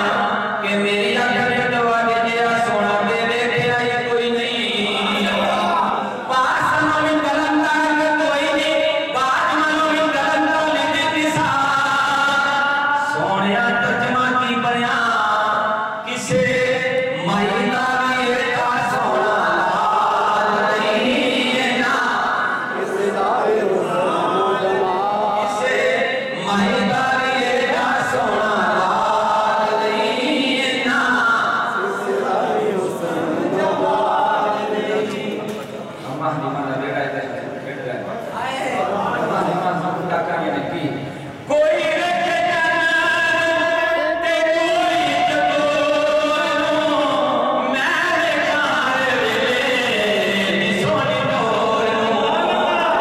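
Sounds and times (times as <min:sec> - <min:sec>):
man singing into a microphone: 0:00.0 - 0:35.6, 0:41.2 - 0:53.0
person breathing: 0:41.0 - 0:41.5.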